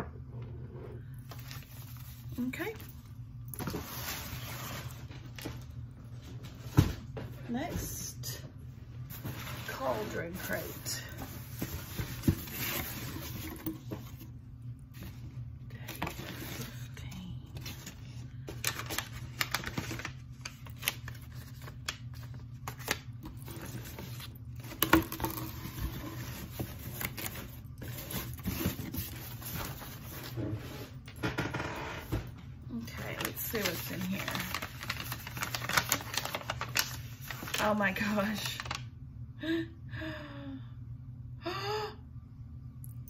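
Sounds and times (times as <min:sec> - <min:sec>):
paper rustling and tearing: 0:17.6 - 0:30.4, 0:33.1 - 0:37.8.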